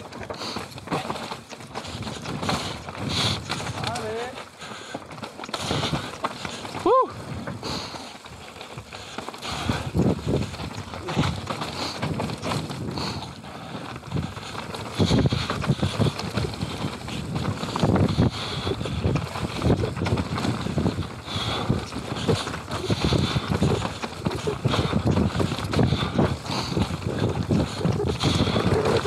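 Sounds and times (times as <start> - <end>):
bike knocking and rattling: 0.0 - 29.0
bike tyres rolling over dirt: 0.0 - 29.0
wind on microphone: 9.4 - 29.0.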